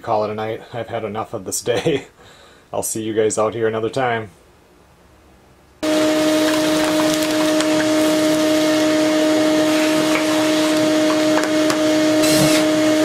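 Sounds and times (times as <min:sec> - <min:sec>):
debris rattling up hose: 0:05.8 - 0:12.8
shop vacuum humming: 0:05.8 - 0:13.0.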